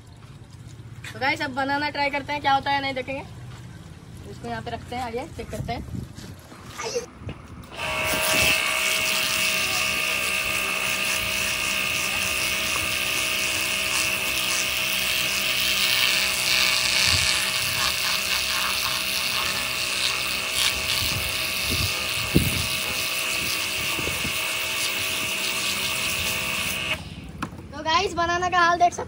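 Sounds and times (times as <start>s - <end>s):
pressure washer whine: 7.6s - 27.3s
water jet hissing: 7.7s - 27.3s.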